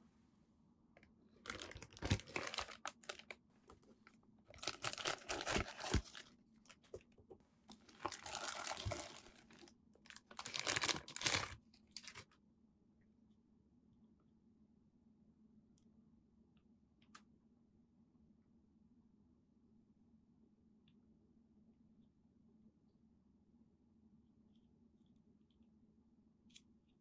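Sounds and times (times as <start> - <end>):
plastic bag crinkling: 1.4 - 7.0, 7.7 - 12.3.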